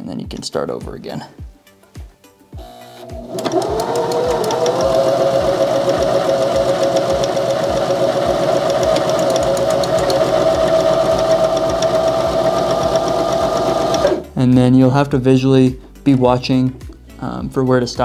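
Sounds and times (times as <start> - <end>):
sewing machine motor whine: 2.6 - 14.2
needle ticking: 3.2 - 14.2.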